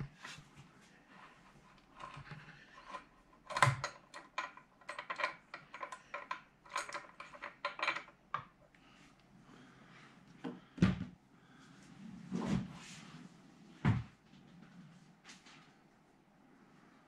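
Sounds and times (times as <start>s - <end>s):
machine parts clinking and knocking: 2.0s - 8.2s.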